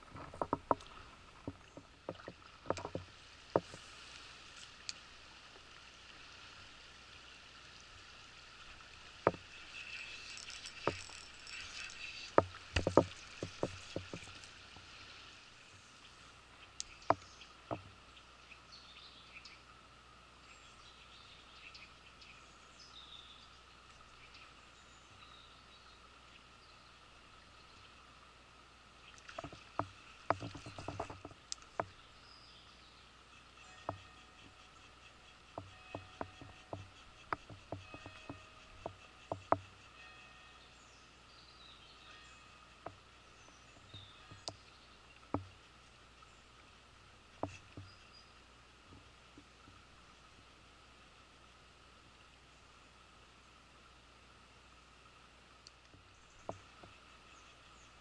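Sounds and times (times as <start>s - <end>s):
sharp clicks and knocks: 0.0s - 3.8s, 9.2s - 9.5s, 10.4s - 14.4s, 29.3s - 31.9s, 35.5s - 39.7s
faint bird chirps: 31.8s - 45.4s.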